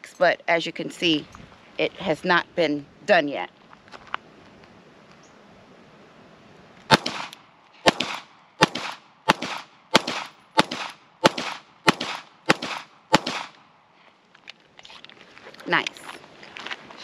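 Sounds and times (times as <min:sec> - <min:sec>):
pistol shots with echo: 0:06.9 - 0:13.6.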